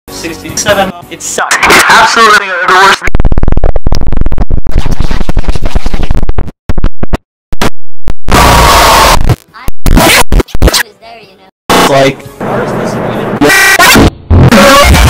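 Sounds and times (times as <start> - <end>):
distorted stuttering audio: 1.4 - 10.8, 11.7 - 15.0
harsh loud noise burst: 11.7 - 15.0.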